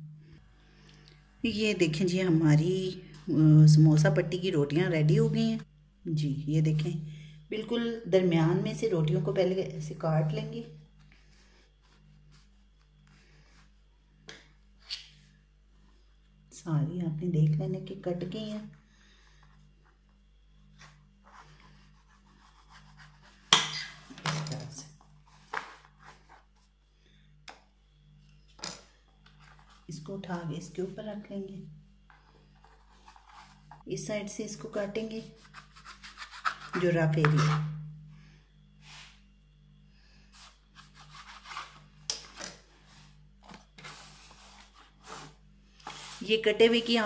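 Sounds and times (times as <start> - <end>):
hand rubbing pastry sheets: 10.9 - 13.9, 19.6 - 23.5, 32.0 - 33.9, 40.3 - 42.0, 42.8 - 47.0.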